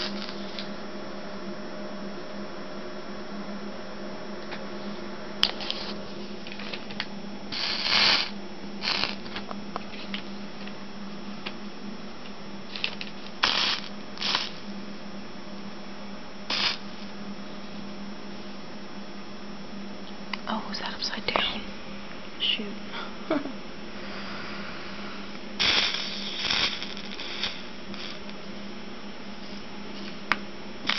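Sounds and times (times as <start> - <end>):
low electrical hum: 0.0 - 30.9.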